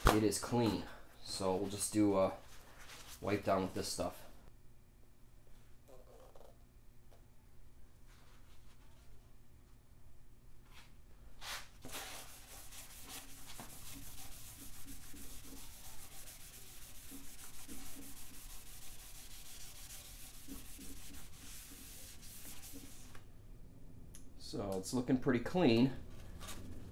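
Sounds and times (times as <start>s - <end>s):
towel scrubbing metal cylinder: 12.2s - 23.1s.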